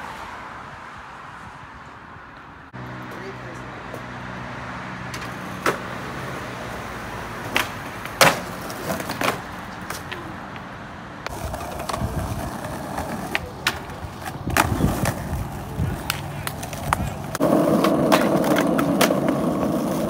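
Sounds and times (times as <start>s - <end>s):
skateboard wheels rolling on asphalt: 0.0s - 20.0s
skateboard clacks: 5.1s - 5.9s, 7.4s - 20.0s.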